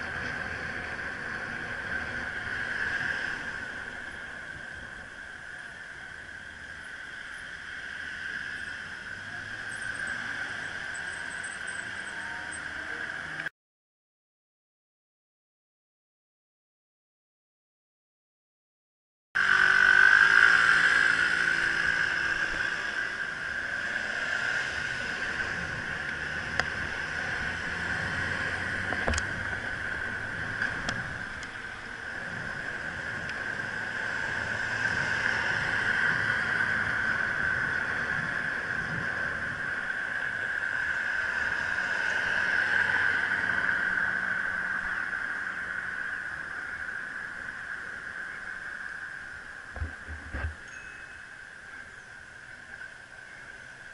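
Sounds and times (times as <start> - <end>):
electric bicycle whine: 0.0 - 13.5, 19.4 - 53.9
road rumble: 0.0 - 13.5, 19.4 - 53.9
low engine hum: 19.4 - 51.2.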